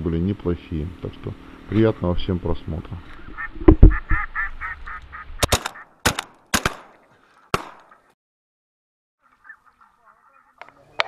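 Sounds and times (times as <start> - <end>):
duck quacking: 3.2 - 6.0, 9.2 - 10.7
loud low thump: 3.6 - 4.2
sharp clicks: 5.4 - 6.9.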